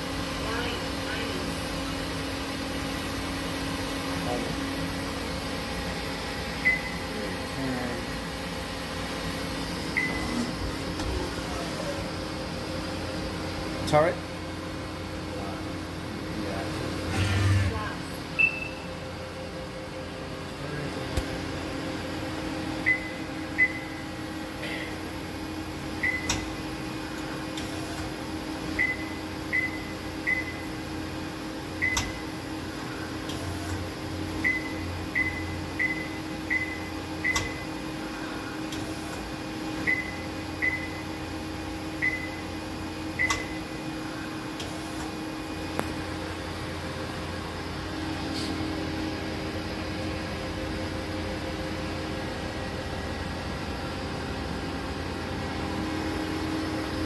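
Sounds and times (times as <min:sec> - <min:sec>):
machine electrical hum: 0:00.0 - 0:57.0
short high electronic beeps: 0:18.4 - 0:18.9.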